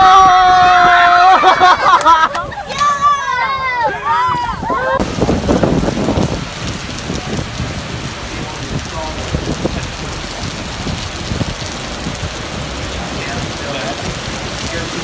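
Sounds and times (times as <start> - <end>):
heavy rain pouring: 0.0 - 15.0
rush of water: 0.2 - 15.0.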